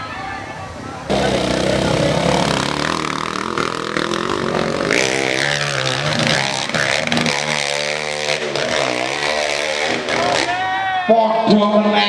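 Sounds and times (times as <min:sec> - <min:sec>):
motorcycle engine revving hard: 0:01.1 - 0:10.6.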